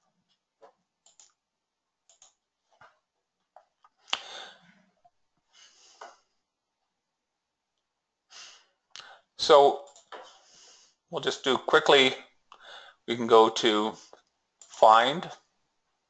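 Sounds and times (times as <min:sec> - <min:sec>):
breaths: 0:04.1 - 0:04.9, 0:05.5 - 0:06.4, 0:08.3 - 0:09.4, 0:10.2 - 0:11.1, 0:12.5 - 0:13.1, 0:13.9 - 0:14.3.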